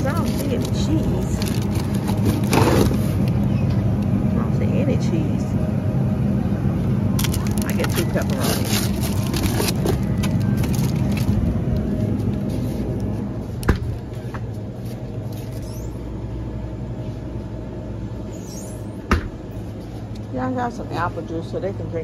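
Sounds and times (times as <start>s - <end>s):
store background rumble: 0.0s - 22.0s.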